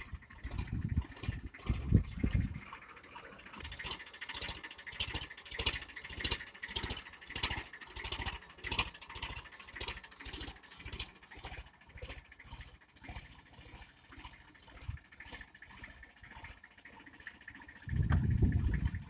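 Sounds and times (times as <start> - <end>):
tractor rotavator thudding: 0.0 - 19.0.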